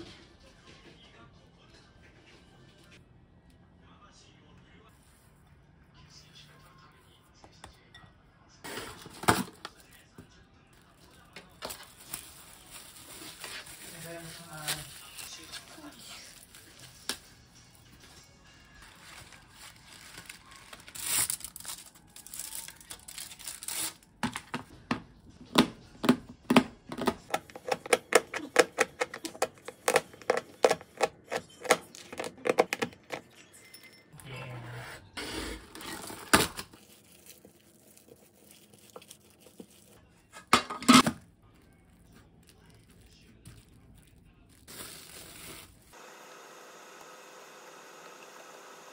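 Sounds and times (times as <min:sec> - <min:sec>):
plastic wrap crinkling: 0:10.8 - 0:17.3, 0:18.8 - 0:24.2, 0:35.9 - 0:40.1, 0:41.4 - 0:46.0
wrappers rustling and tearing: 0:10.8 - 0:17.3, 0:18.8 - 0:24.2, 0:35.7 - 0:40.1, 0:40.9 - 0:46.0.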